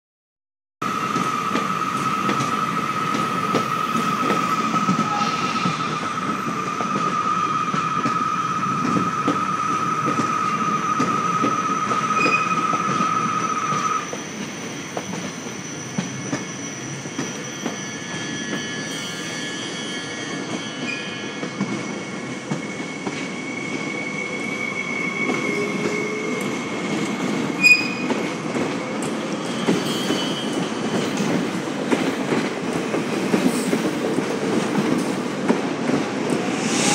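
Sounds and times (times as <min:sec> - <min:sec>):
high wheel squeal: 0:01.2 - 0:28.4, 0:29.3 - 0:31.6, 0:36.3 - 0:36.9
train rolling rumble: 0:20.3 - 0:36.9
train clank: 0:27.3 - 0:36.9.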